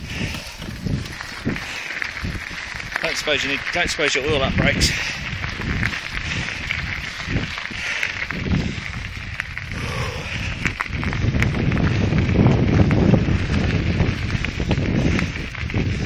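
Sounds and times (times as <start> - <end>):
bicycle clicks and rattles: 0.0 - 16.0
bicycle tyres crunching on gravel: 0.0 - 16.0
low rumble: 4.5 - 16.0.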